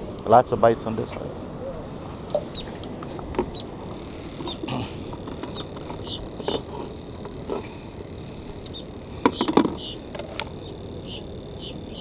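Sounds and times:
background hiss: 0:00.0 - 0:12.0
faint high squeaky chirps: 0:01.6 - 0:02.8, 0:04.4 - 0:04.7, 0:05.5 - 0:06.9, 0:08.7 - 0:12.0
sharp clattering knocks: 0:09.2 - 0:09.9.

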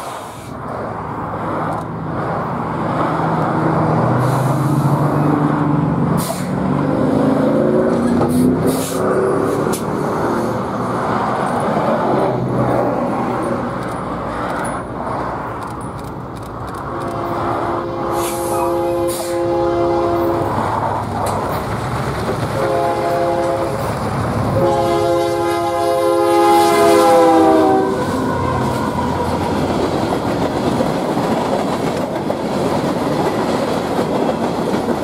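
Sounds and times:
rush of traffic: 0:00.0 - 0:35.0
vehicle passing by: 0:00.7 - 0:15.7.

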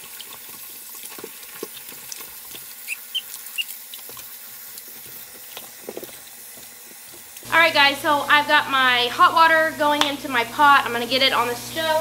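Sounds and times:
small splashes: 0:00.0 - 0:07.4
tap water running into sink: 0:00.0 - 0:10.2.

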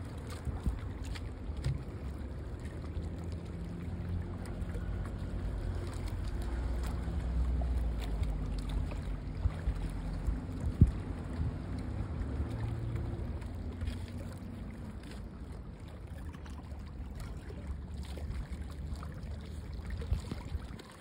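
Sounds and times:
low engine rumble: 0:00.0 - 0:21.0
wind noise on microphone: 0:09.4 - 0:12.4, 0:19.9 - 0:20.9.

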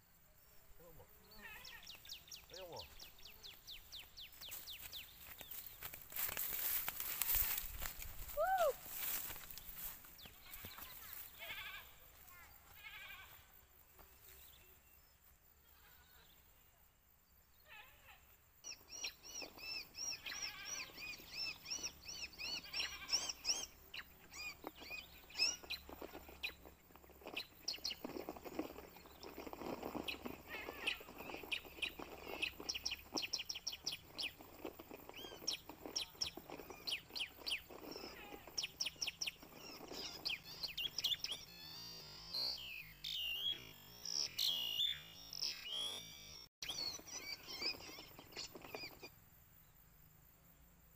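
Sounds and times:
small birds chirping: 0:00.0 - 0:49.9.

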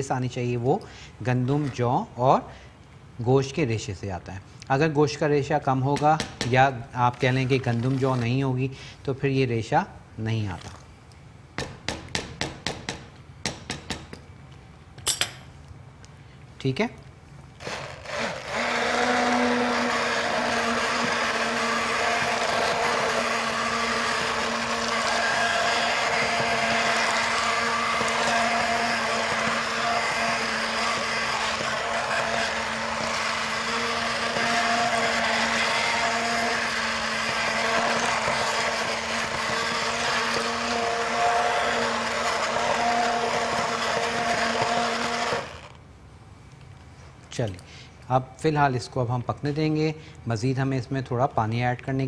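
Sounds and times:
electric hand blender running: 0:17.6 - 0:45.7.

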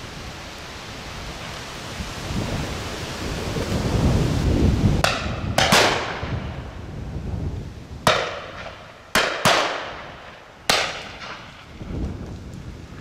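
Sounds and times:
wind rumble on microphone: 0:00.0 - 0:13.0
shotgun shots with echo: 0:05.0 - 0:06.3, 0:08.1 - 0:10.1, 0:10.7 - 0:11.6.

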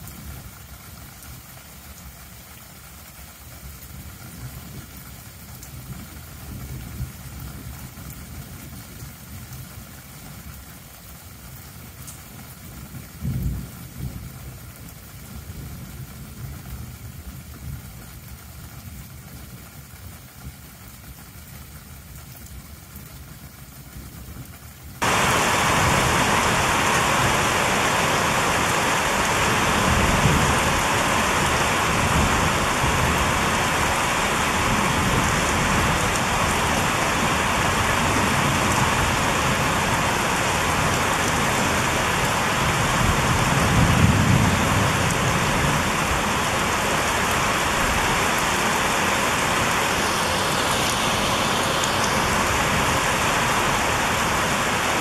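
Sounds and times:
heavy rain pouring: 0:00.0 - 0:55.0
low rumble of thunder: 0:12.8 - 0:18.3, 0:24.2 - 0:47.8.

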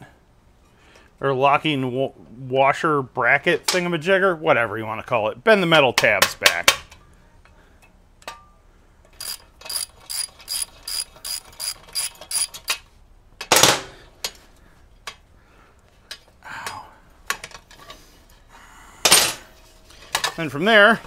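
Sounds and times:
ratchet wrench clicking: 0:09.2 - 0:12.6.

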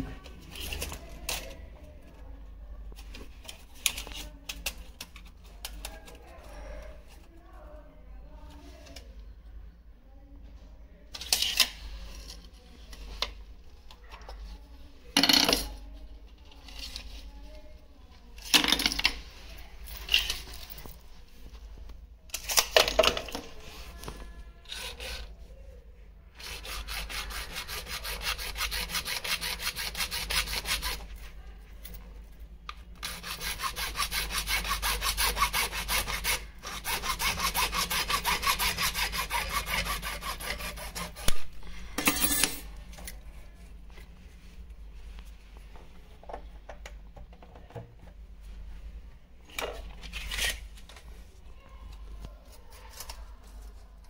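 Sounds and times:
hand tool rasping on pipe: 0:24.7 - 0:25.3, 0:26.4 - 0:31.0, 0:33.0 - 0:41.4.

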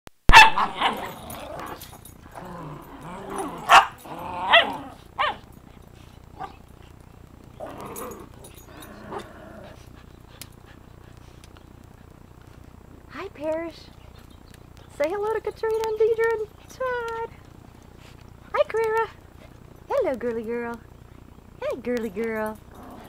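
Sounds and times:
dog barking: 0:00.3 - 0:01.2, 0:03.6 - 0:05.4
dog yelping: 0:00.3 - 0:01.8, 0:02.8 - 0:05.5
dogs growling: 0:00.6 - 0:12.3, 0:22.5 - 0:23.0.

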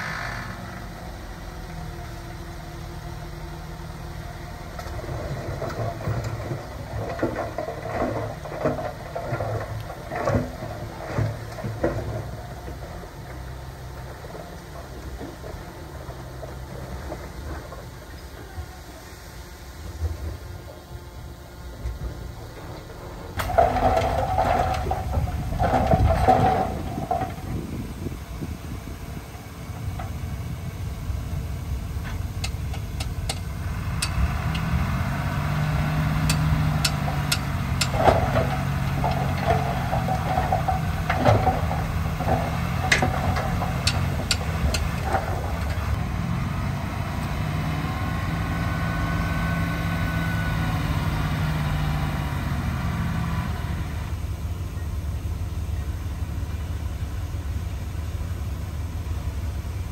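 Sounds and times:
heavy diesel machinery engine: 0:00.0 - 0:59.9
metallic clanks and knocks: 0:36.2 - 0:46.0.

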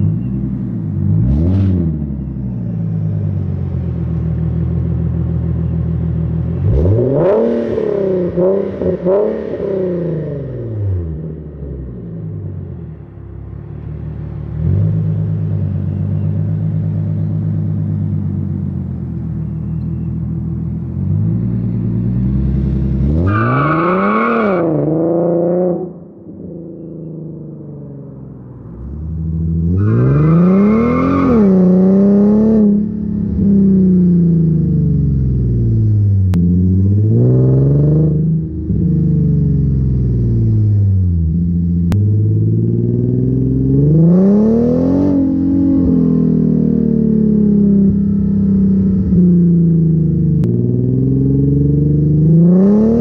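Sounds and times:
car engine accelerating hard: 0:06.5 - 0:11.2, 0:28.0 - 0:53.0.

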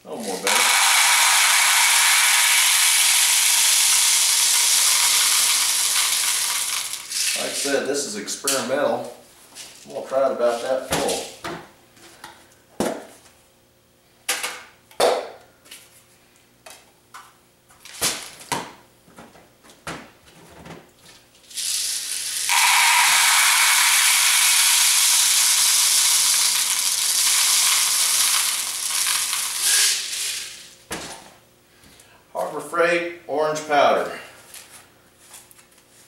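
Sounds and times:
pellets poured into plastic tub: 0:00.1 - 0:07.8, 0:21.5 - 0:30.7.

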